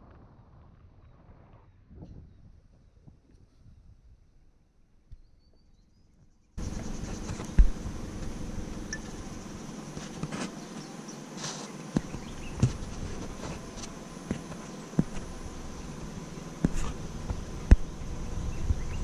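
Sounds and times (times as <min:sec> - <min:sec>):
dull thumps: 0:06.6 - 0:10.9, 0:11.9 - 0:19.0
insects shrilling: 0:06.6 - 0:19.0.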